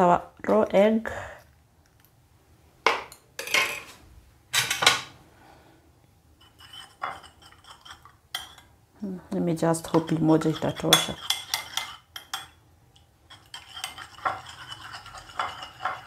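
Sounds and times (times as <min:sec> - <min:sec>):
spoon clinking against ceramic bowl: 0:09.9 - 0:12.6, 0:13.3 - 0:16.0.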